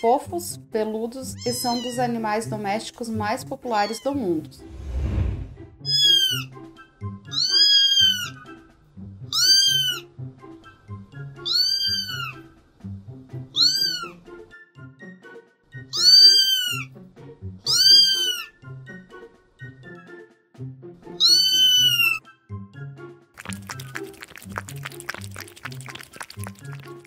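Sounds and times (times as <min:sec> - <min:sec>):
background music with steady beat: 0:05.4 - 0:21.9
kitten mewing: 0:09.3 - 0:10.0, 0:11.4 - 0:12.4, 0:13.6 - 0:14.2, 0:15.9 - 0:16.9, 0:17.7 - 0:18.5, 0:21.2 - 0:22.2.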